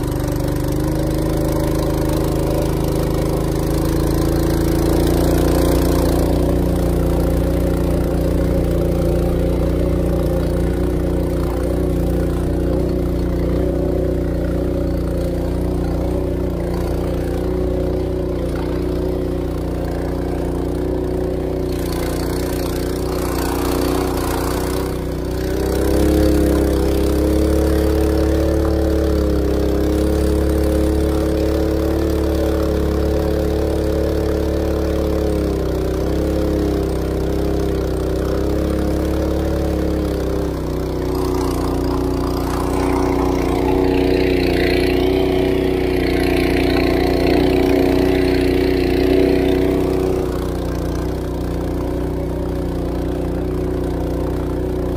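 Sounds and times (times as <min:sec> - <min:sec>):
boat engine running: 0:00.0 - 0:54.9
hissing rush of water: 0:38.9 - 0:51.8.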